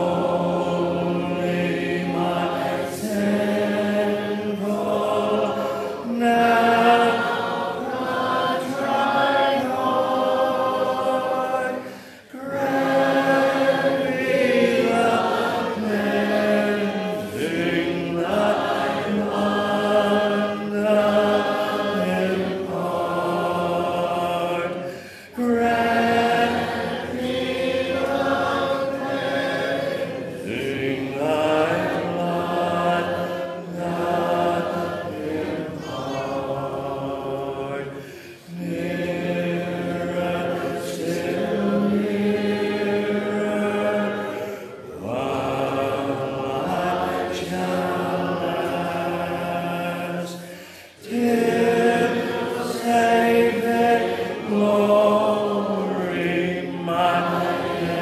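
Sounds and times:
man's voice leading singing: 0.0s - 7.3s, 15.8s - 27.2s
congregation singing a hymn: 0.0s - 58.0s.

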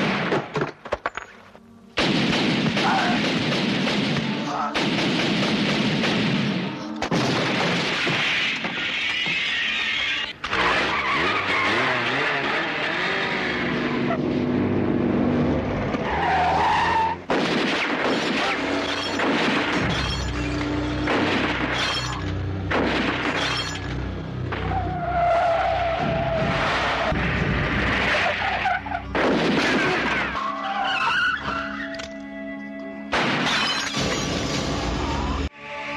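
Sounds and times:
car engines running: 10.2s - 17.3s
crashes with breaking glass: 18.0s - 24.0s, 33.2s - 34.7s
tyres squealing: 30.2s - 32.2s.

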